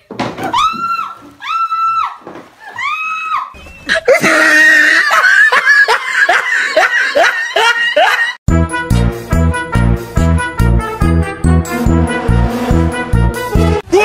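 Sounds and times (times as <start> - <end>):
person laughing hard: 3.9 - 8.4
music with steady beat: 8.5 - 13.8.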